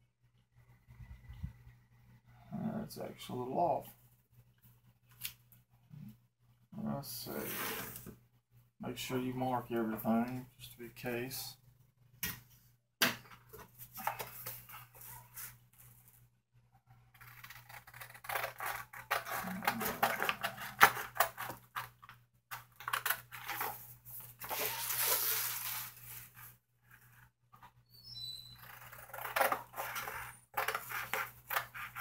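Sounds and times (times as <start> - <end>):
scissors snipping paper: 17.2 - 21.9
paper sheet rustling: 23.4 - 26.6.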